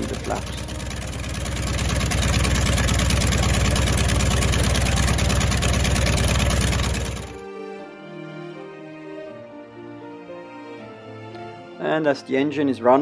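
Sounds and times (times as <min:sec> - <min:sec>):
soft music: 0:00.0 - 0:01.0, 0:07.3 - 0:13.0
radial aircraft engine running: 0:00.0 - 0:07.5.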